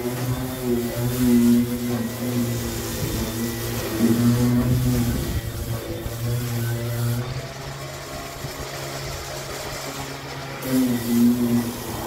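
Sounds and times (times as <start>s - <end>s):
electric sander humming on metal: 0.0s - 12.0s.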